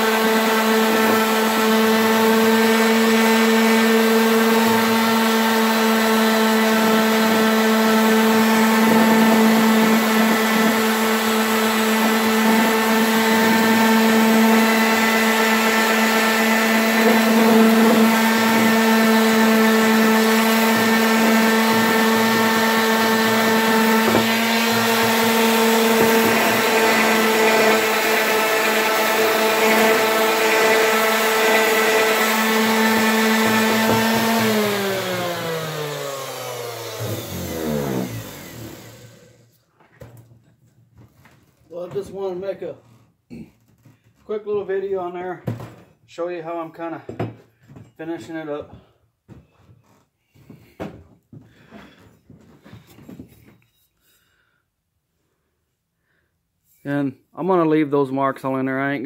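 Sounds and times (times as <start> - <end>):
palm sander motor hum: 0.0 - 39.5.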